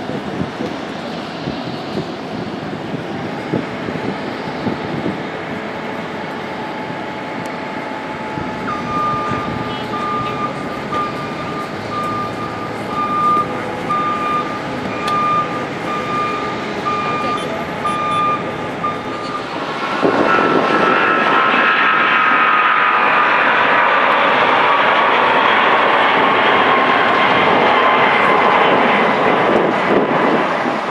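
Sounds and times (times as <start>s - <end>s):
jet engines at takeoff thrust: 0.0s - 30.9s
jet engines of taxiing airliners: 0.0s - 30.9s
reversing alarm beeping: 7.8s - 20.6s.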